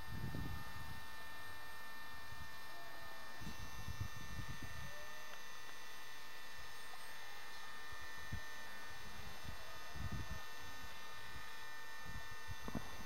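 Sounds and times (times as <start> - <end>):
wind on microphone: 0.0 - 1.0, 3.4 - 5.0, 8.3 - 10.5, 11.4 - 13.0
camcorder electrical buzz: 0.0 - 13.0.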